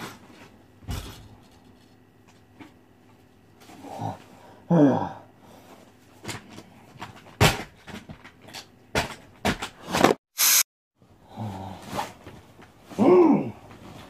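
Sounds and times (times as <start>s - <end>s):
low voice-like sound: 3.8s - 5.3s, 13.0s - 13.7s
loud hissing burst: 10.4s - 10.7s.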